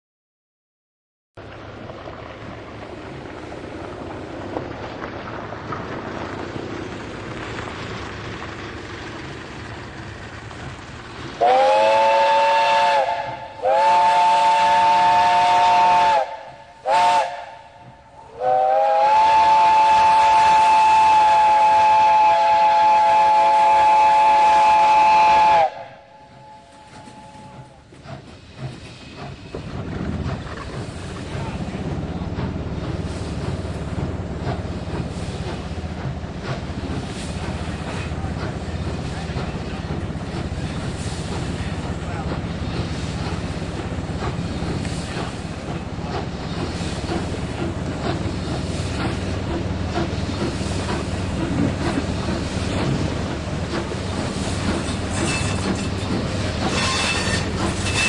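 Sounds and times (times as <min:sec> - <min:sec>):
steam hissing: 0:06.3 - 0:58.0
steam locomotive whistle blasts: 0:11.4 - 0:27.8, 0:55.1 - 0:55.9, 0:56.6 - 0:58.0.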